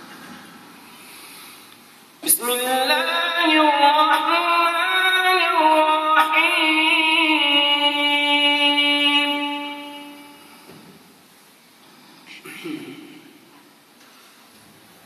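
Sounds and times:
man chanting melodically: 2.2 - 10.4.

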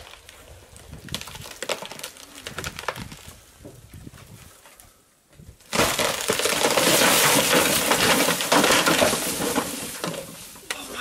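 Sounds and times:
wood cracking and splintering: 0.0 - 3.5, 5.6 - 11.0
crash of breaking branches: 5.7 - 10.6.

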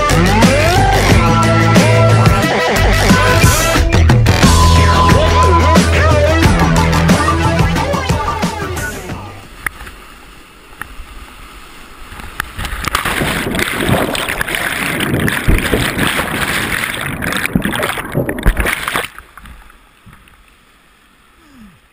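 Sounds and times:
whitewater rushing and crashing: 5.3 - 21.9.

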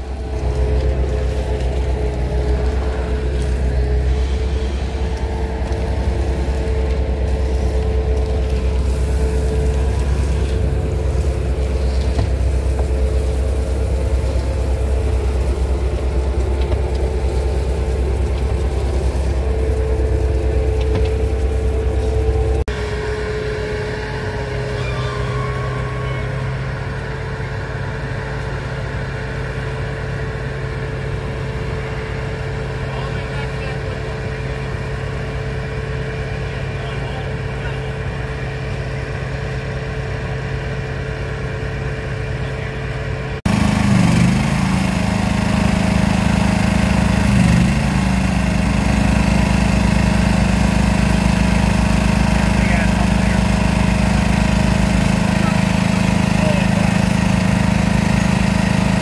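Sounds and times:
heavy machinery engine humming: 0.0 - 59.0.

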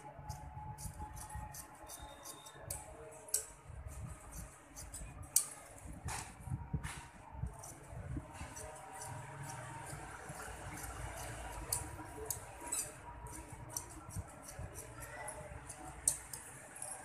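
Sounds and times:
scissors snipping fabric: 0.2 - 3.6, 4.2 - 6.3, 7.5 - 17.0
scissor blades clicking: 10.8 - 15.0, 15.7 - 16.9.

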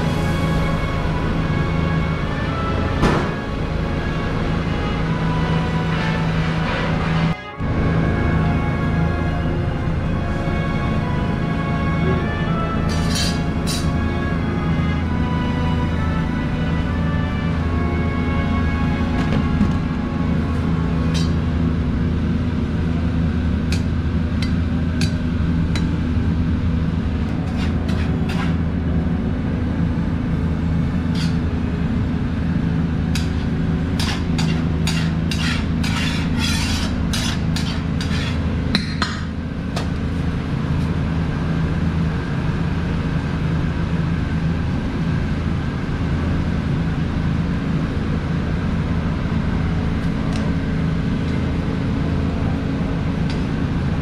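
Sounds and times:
steady low hum: 0.0 - 54.0
metal scoop scraping a pot: 12.9 - 13.9, 27.4 - 28.6, 31.1 - 31.4, 33.2 - 38.5.

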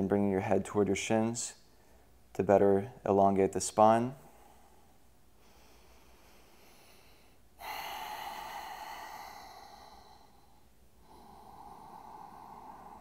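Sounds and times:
man breathing out: 4.2 - 13.0.

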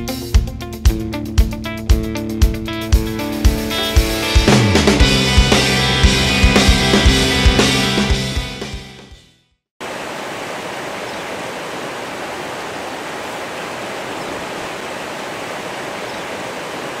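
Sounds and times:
drum-kit music: 0.0 - 9.2
river water rushing: 9.8 - 17.0.

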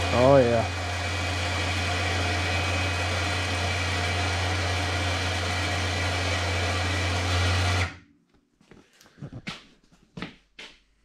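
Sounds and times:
electric winch whining: 0.0 - 8.0.

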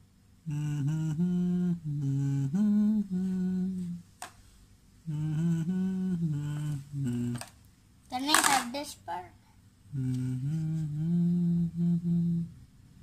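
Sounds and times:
person humming a tune: 0.4 - 4.1, 5.0 - 7.5, 9.9 - 12.6.

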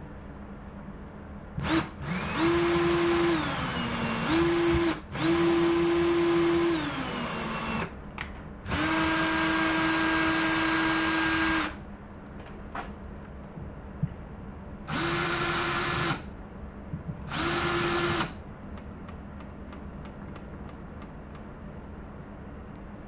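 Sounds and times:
cordless drill motor whining: 1.6 - 7.9, 8.7 - 11.8, 14.9 - 16.3, 17.3 - 18.4.

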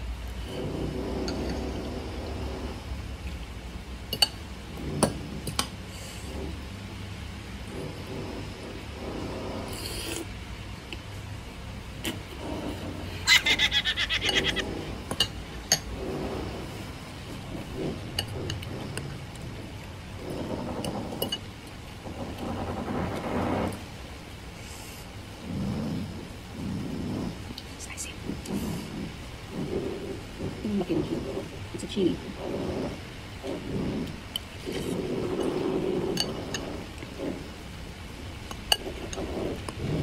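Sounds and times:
rain hissing: 0.0 - 40.0.

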